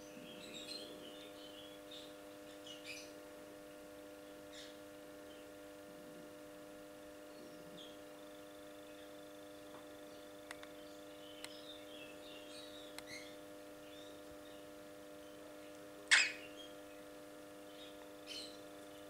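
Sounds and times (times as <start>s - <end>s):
electrical hum: 0.0s - 19.0s
cockatiels chirping: 16.1s - 16.7s.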